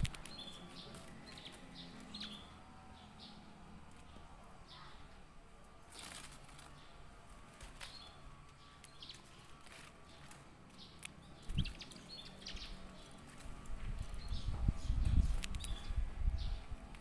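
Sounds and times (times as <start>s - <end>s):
wing flutter: 0.0s - 2.6s, 3.6s - 17.0s
canary chirping: 0.0s - 3.4s, 7.8s - 13.4s.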